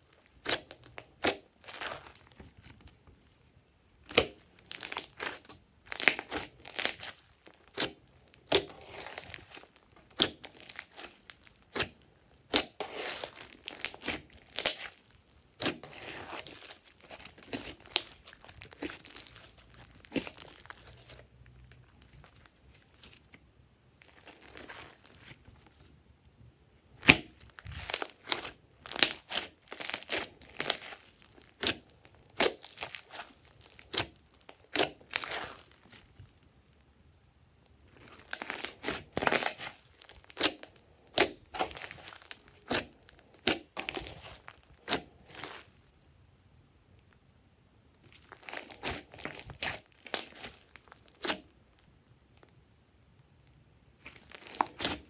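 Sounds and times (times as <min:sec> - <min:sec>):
hands squishing slime: 0:00.1 - 0:03.0, 0:04.0 - 0:23.4, 0:24.0 - 0:25.8, 0:27.0 - 0:36.2, 0:37.9 - 0:45.8, 0:48.1 - 0:51.6, 0:54.0 - 0:55.0.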